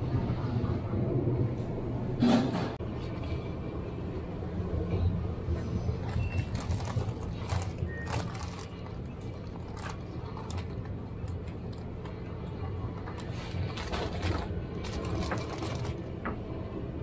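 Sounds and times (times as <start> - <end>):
low machine hum: 0.0 - 17.0
packaging rustling: 6.0 - 11.9, 13.1 - 16.1.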